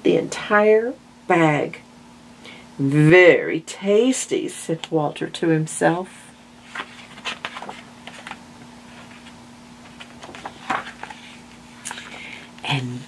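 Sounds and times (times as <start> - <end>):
steady low hum: 0.0 - 13.0
book page turning: 6.6 - 12.1.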